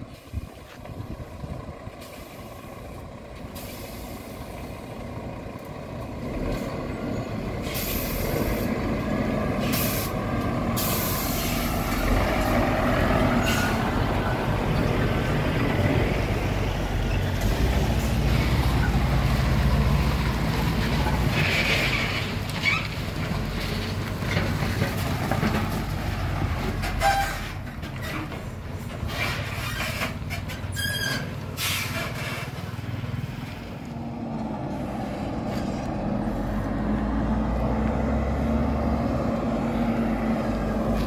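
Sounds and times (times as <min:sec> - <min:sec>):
truck diesel engine: 0:00.0 - 0:41.0
air brakes hissing: 0:03.5 - 0:04.6, 0:07.6 - 0:08.7, 0:09.6 - 0:11.9, 0:13.3 - 0:13.9, 0:30.8 - 0:32.6.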